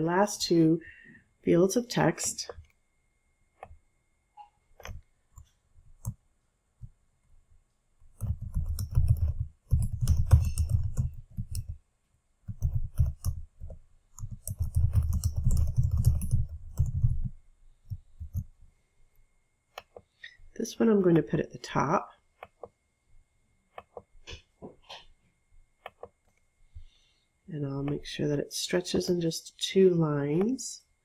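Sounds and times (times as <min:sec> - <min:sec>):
computer keyboard typing: 0:08.1 - 0:11.8, 0:12.5 - 0:18.5.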